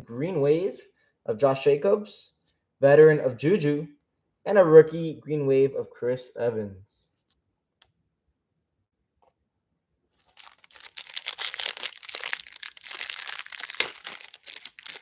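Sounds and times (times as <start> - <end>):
plastic wrapper tearing and crinkling: 10.2 - 15.0.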